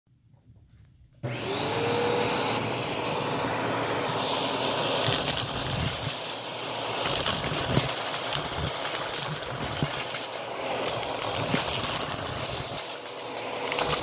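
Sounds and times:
vacuum cleaner running: 1.2 - 14.0
coins rattling through nozzle: 5.0 - 6.2, 6.9 - 14.0.

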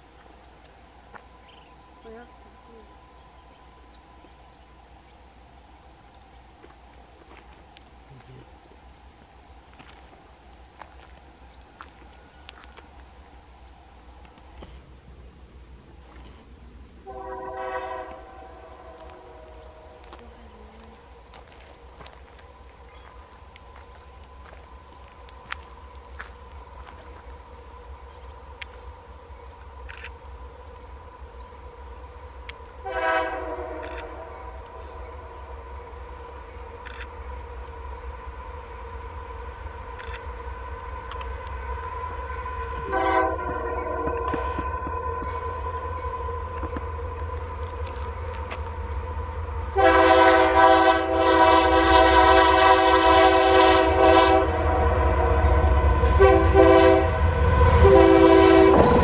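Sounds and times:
faint steady hum: 0.0 - 56.3
low rumble: 0.0 - 59.0
train air horn blast: 17.0 - 20.5, 32.8 - 35.3, 41.6 - 46.6, 49.7 - 59.0.

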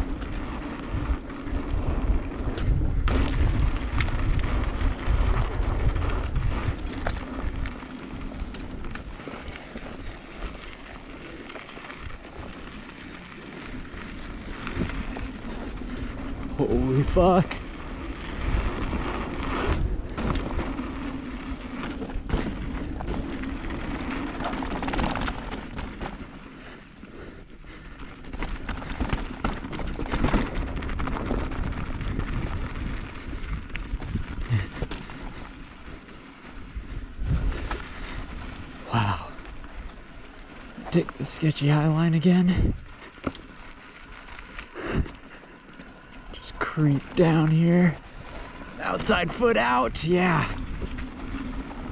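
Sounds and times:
bike knocks and rattles: 0.0 - 10.7, 11.5 - 26.6, 28.2 - 35.9
wind rumble on microphone: 0.0 - 11.3, 11.9 - 26.4, 28.3 - 41.0, 41.9 - 43.4, 47.8 - 51.9
bike tyres on loose dirt: 0.0 - 51.9.

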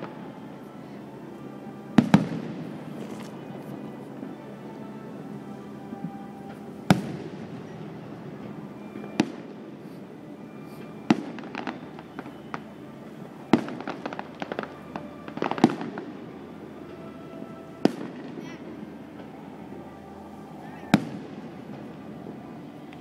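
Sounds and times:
firework crackling pops: 2.0 - 3.6, 10.6 - 12.7, 13.4 - 16.2.

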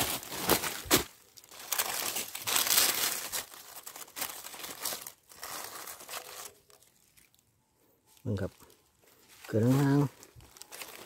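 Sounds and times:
dry leaves crackling and rustling: 0.0 - 7.5, 8.1 - 11.0.

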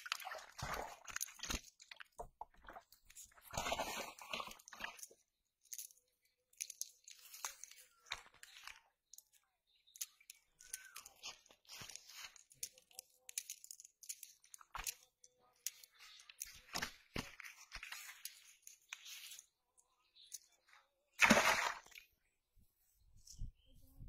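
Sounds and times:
dry leaves and twigs crunching: 3.1 - 19.6.

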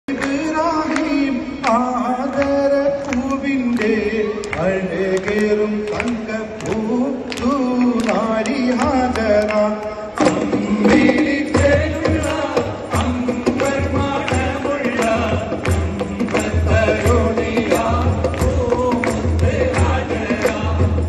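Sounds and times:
hand claps keeping the beat: 0.1 - 21.0
men singing folk song: 0.1 - 21.0.

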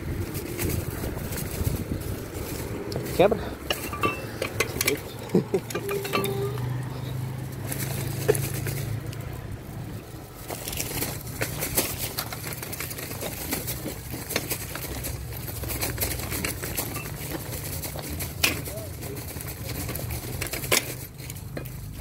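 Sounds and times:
road traffic hum: 0.0 - 22.0
footsteps crunching on ballast: 6.8 - 22.0.

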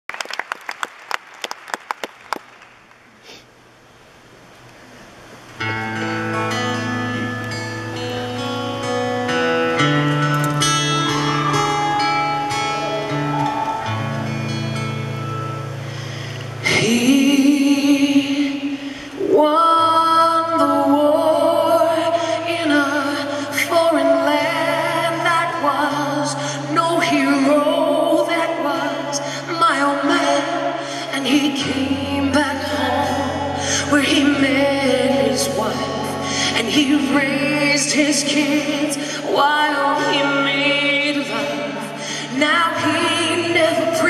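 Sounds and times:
audience clapping: 0.0 - 3.3
quiet crowd noise: 0.1 - 44.0
woman singing a slow ballad: 16.4 - 44.0.

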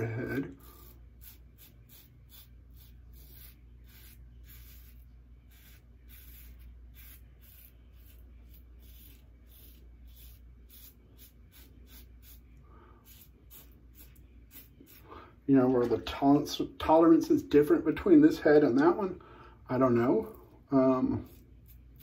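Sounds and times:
razor scraping stubble: 0.0 - 15.1, 21.1 - 22.0.

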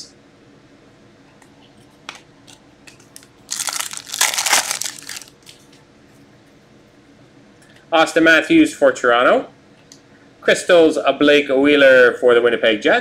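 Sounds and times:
foil wrapper crinkling: 2.9 - 5.7.

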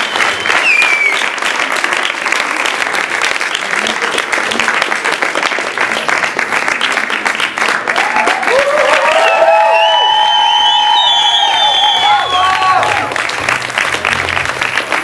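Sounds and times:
audience applauding: 0.0 - 15.0
whooping cheers: 7.9 - 13.2.

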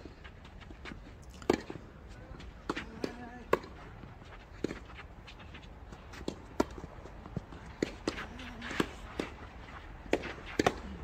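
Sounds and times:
quick footsteps on court: 0.0 - 11.0
tennis ball bounces: 1.4 - 1.8, 2.6 - 3.8, 6.1 - 11.0.

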